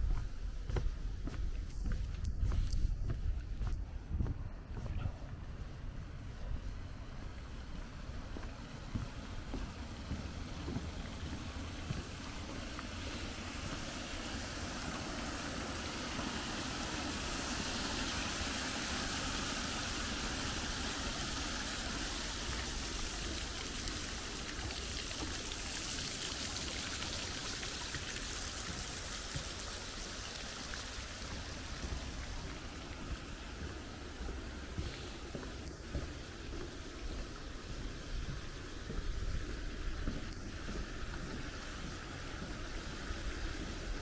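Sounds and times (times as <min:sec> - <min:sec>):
sea waves washing on shore: 0:09.7 - 0:44.0.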